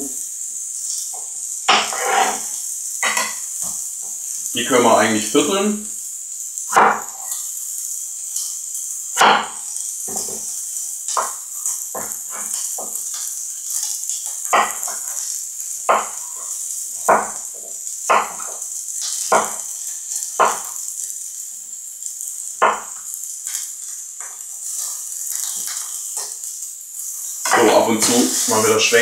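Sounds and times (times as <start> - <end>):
vegetables sizzling in a pan: 0.0 - 29.0
knife chopping on wooden board: 9.2 - 9.5, 15.9 - 16.1, 17.1 - 17.4, 18.1 - 18.4, 19.3 - 19.6, 20.4 - 20.6.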